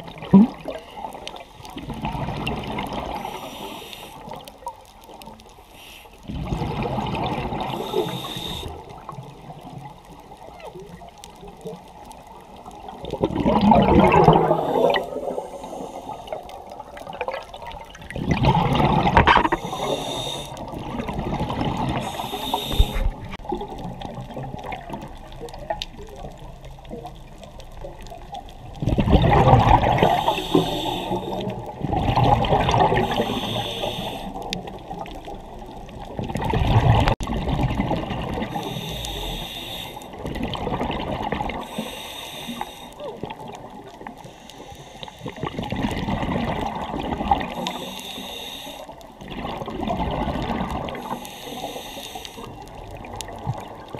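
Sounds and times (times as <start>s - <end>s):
exhaled bubbles rushing: 0.0s - 3.4s, 6.3s - 9.8s, 12.7s - 15.6s, 16.3s - 20.0s, 20.6s - 26.5s, 28.6s - 33.6s, 34.4s - 38.6s, 40.1s - 41.7s, 45.3s - 47.8s, 49.2s - 51.2s
diver breathing through regulator: 3.0s - 4.4s, 5.7s - 6.5s, 7.6s - 8.9s, 14.2s - 16.6s, 19.4s - 21.0s, 21.9s - 23.4s, 29.8s - 31.6s, 32.8s - 34.5s, 38.5s - 40.2s, 41.6s - 43.0s, 44.2s - 45.7s, 47.4s - 49.0s, 50.9s - 52.6s.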